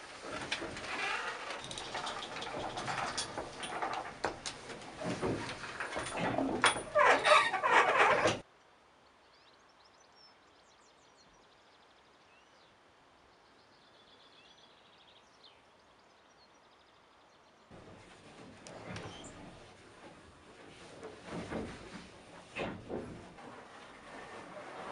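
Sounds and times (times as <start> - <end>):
wooden windmill machinery creaking: 0.0 - 8.5, 17.7 - 24.9
faint birdsong: 8.4 - 18.1.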